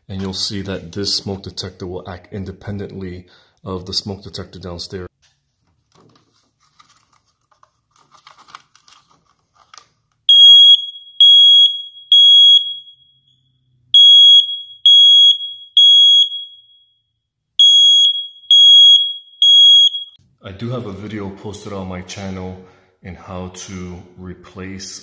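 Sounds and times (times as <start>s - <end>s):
smoke alarm beeping: 10.3s - 20.2s.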